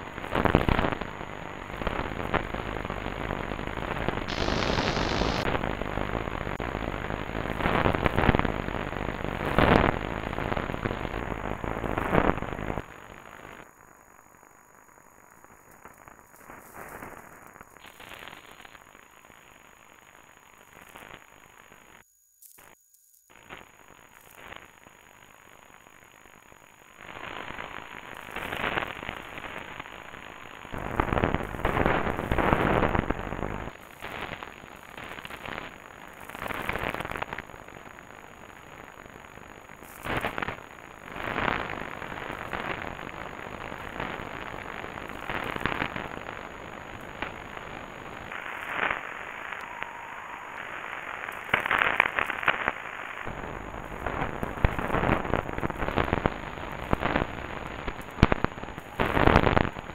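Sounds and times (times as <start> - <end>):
radio static crackling and crashing: 0.0 - 22.0, 27.0 - 59.9
steady radio hiss: 0.0 - 59.9.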